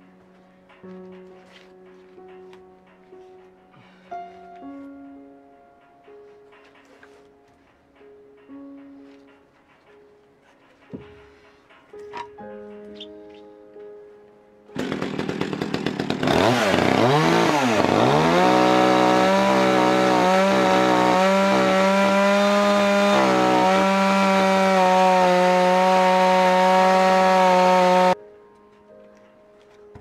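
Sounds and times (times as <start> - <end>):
electric chainsaw cutting log: 14.8 - 28.2.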